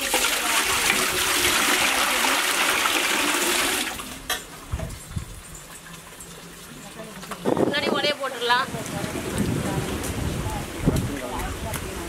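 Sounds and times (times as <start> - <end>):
water pouring into a pot: 0.0 - 4.3, 4.9 - 7.4.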